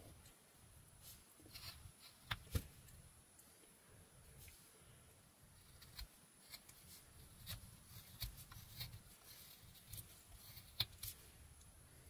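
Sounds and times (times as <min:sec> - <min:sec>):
knife carving wood: 0:01.1 - 0:03.0, 0:05.4 - 0:11.7.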